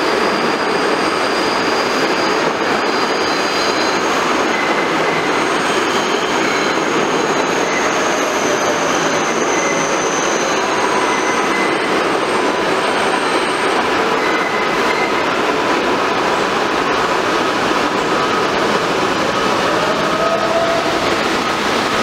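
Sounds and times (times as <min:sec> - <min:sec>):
subway train wheels on rail: 0:00.0 - 0:22.0
faint high squeals: 0:00.3 - 0:15.3.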